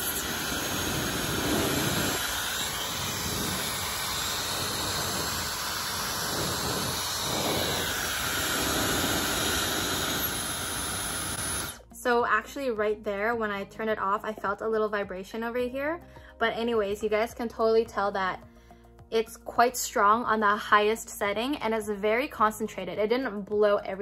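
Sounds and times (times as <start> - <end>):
hair dryer blowing air: 0.0 - 11.9.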